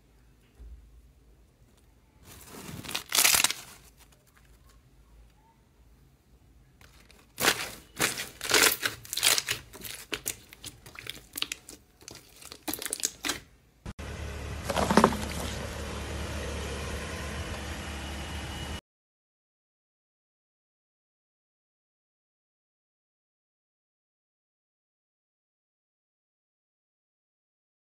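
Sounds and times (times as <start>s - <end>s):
slime crackling and popping: 2.5s - 4.0s, 6.9s - 13.5s.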